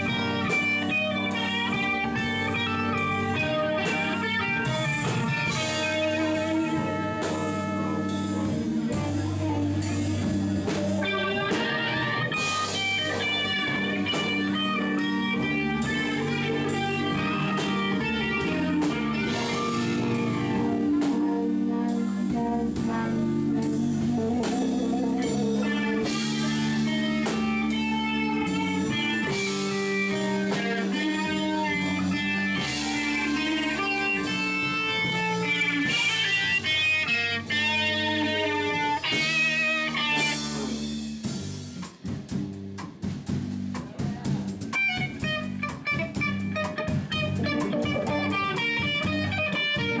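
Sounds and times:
bass: 0:00.0 - 0:50.0
drum kit: 0:00.0 - 0:50.0
electric guitars: 0:00.0 - 0:50.0.

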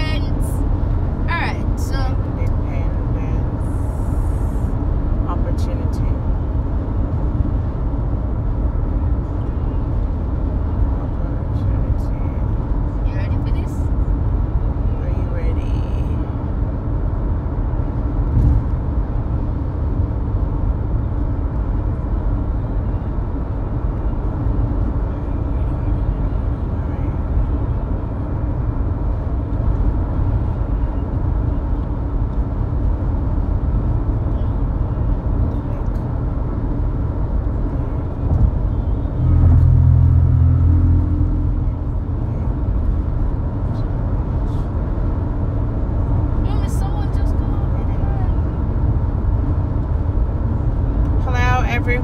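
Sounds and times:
car driving rumble inside cabin: 0:00.0 - 0:52.0
loud low drone: 0:36.7 - 0:44.8.

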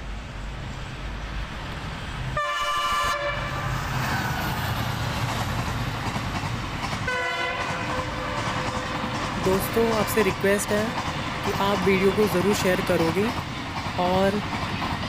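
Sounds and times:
train rumbling on rails: 0:00.0 - 0:15.0
locomotive horn blasts: 0:02.4 - 0:03.6, 0:07.1 - 0:08.9.

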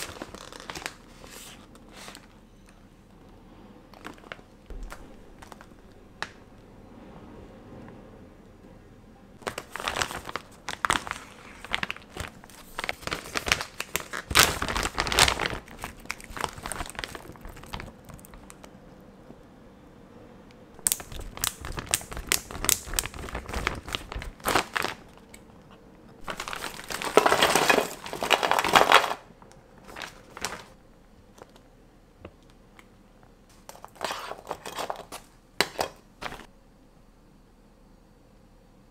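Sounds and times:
plastic bags crinkling: 0:00.0 - 0:02.4, 0:04.0 - 0:06.6, 0:09.4 - 0:18.8, 0:20.8 - 0:30.8, 0:33.5 - 0:36.5.

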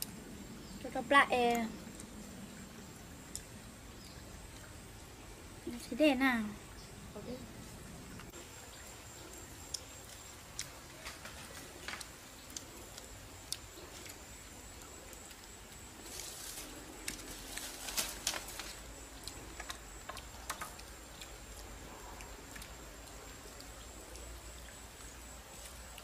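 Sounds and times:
faint steady hiss: 0:00.0 - 0:26.0.

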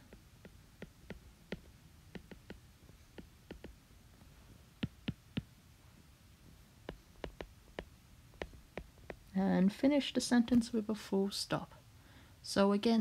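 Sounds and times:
stylus tapping on glass screen: 0:00.0 - 0:03.8, 0:04.8 - 0:05.5, 0:06.8 - 0:09.3.

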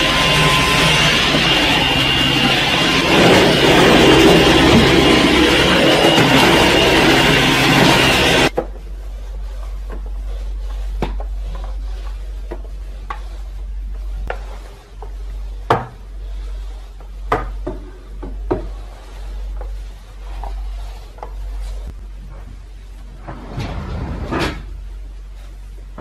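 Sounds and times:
mop swishing over floor: 0:00.0 - 0:26.0.

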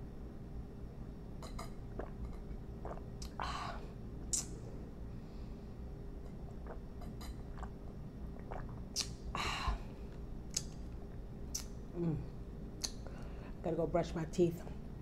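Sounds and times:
faint steady hum: 0:00.0 - 0:15.0
swallowing: 0:01.4 - 0:04.5, 0:06.2 - 0:10.7
mouth drinking and chewing: 0:01.4 - 0:04.6, 0:06.2 - 0:13.2
wet lip and tongue clicks: 0:04.3 - 0:04.6, 0:08.4 - 0:09.2, 0:10.5 - 0:10.8, 0:11.5 - 0:11.8, 0:12.8 - 0:13.0.

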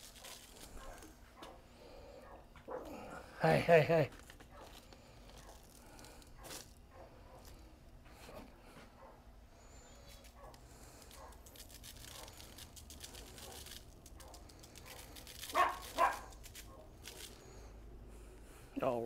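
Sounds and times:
spice shaker rattling: 0:00.0 - 0:01.1, 0:09.9 - 0:17.7.

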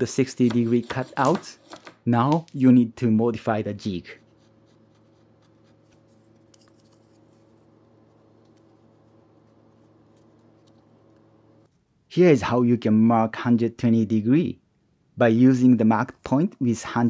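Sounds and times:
faint steady hum: 0:01.9 - 0:17.0.

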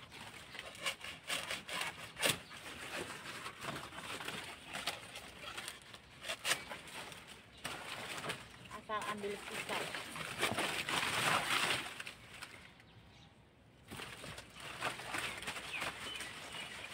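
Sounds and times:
dry leaves and bag rustling: 0:02.3 - 0:12.8, 0:13.8 - 0:16.9.

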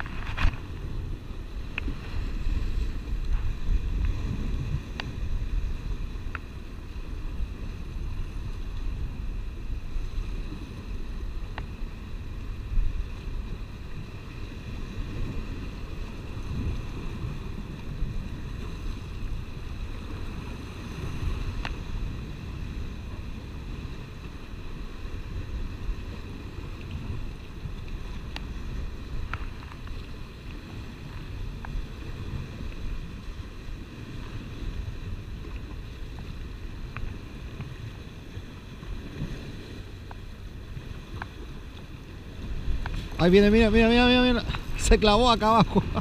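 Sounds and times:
sea surf against rocks: 0:00.0 - 0:46.0
wind noise on microphone: 0:00.0 - 0:46.0
faint ticks: 0:04.9 - 0:05.2, 0:06.2 - 0:06.5, 0:11.5 - 0:11.8, 0:26.7 - 0:28.5, 0:35.4 - 0:37.8, 0:40.0 - 0:40.3, 0:41.0 - 0:41.9.

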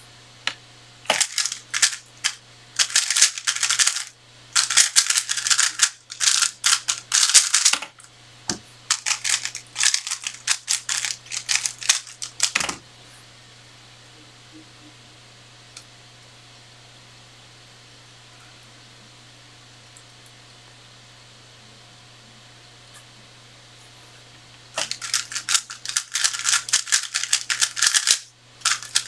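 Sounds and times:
puzzle cube clicking: 0:04.6 - 0:07.8, 0:24.8 - 0:29.0.

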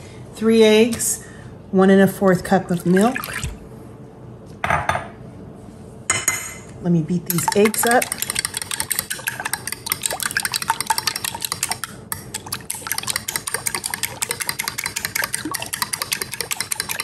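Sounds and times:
liquid sloshing: 0:02.7 - 0:03.7, 0:07.3 - 0:17.0
fork clicking against glass bowl: 0:07.3 - 0:17.0.

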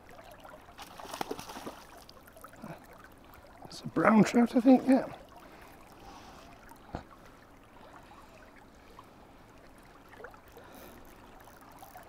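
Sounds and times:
river water flowing: 0:00.0 - 0:12.0.

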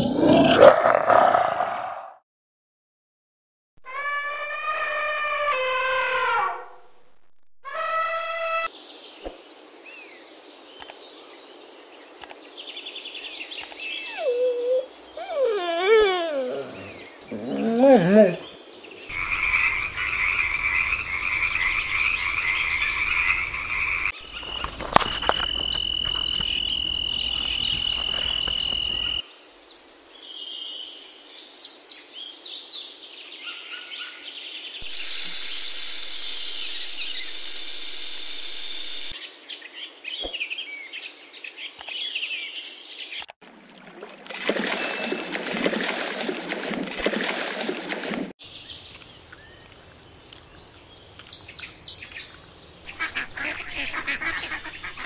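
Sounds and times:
outdoor nature sounds: 0:00.0 - 0:02.2, 0:03.8 - 0:55.0
frog croaking: 0:19.1 - 0:29.2.

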